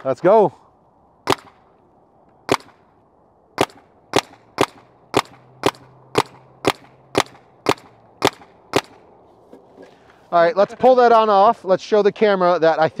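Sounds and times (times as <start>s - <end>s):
paintball marker firing: 1.2s - 1.7s, 2.5s - 2.8s, 3.6s - 9.0s.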